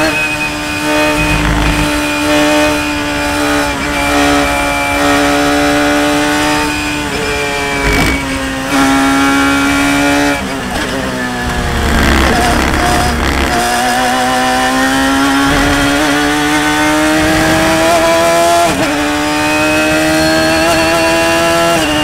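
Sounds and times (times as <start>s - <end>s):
racing car engine at high revs: 0.0s - 22.0s
wind rush: 0.8s - 8.8s, 11.1s - 18.4s.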